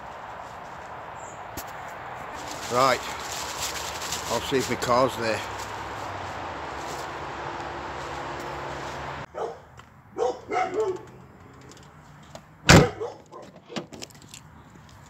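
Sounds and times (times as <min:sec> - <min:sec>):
steady rustling: 0:00.0 - 0:09.3
dog barking: 0:09.3 - 0:11.1, 0:12.8 - 0:13.6
car door thump: 0:12.7 - 0:13.0.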